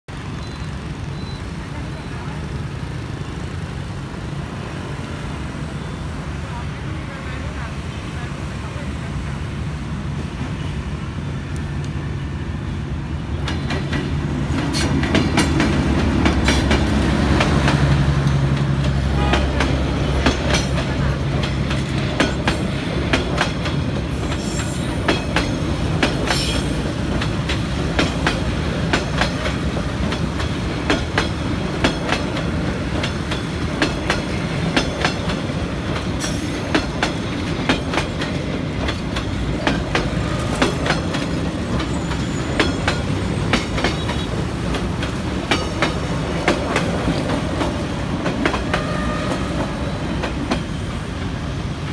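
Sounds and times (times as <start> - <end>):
diesel locomotive engine hum: 0.1 - 51.9
train wheels clacking over rail joints: 13.3 - 51.9
high wheel squeal: 41.8 - 43.1.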